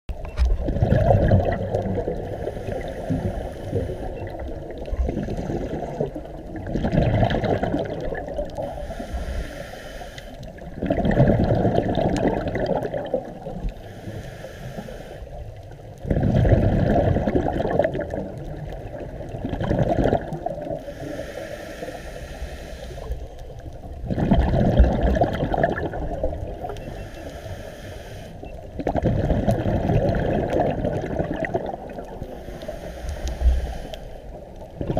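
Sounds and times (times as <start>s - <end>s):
exhaled bubbles underwater: 0.1s - 9.3s, 10.4s - 13.9s, 15.3s - 21.3s, 22.8s - 27.3s, 28.4s - 33.6s, 34.3s - 34.9s
regulator inhale hiss: 2.2s - 6.0s, 8.6s - 10.6s, 13.8s - 15.6s, 20.8s - 23.6s, 26.6s - 28.5s, 32.2s - 34.6s.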